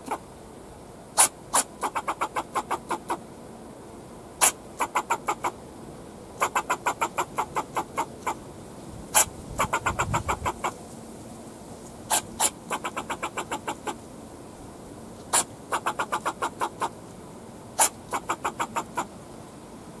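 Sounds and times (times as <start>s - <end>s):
squirrel barking: 1.2s - 3.2s, 4.4s - 5.6s, 6.4s - 8.4s, 9.1s - 10.8s, 12.1s - 14.0s, 15.3s - 17.0s, 17.8s - 19.1s.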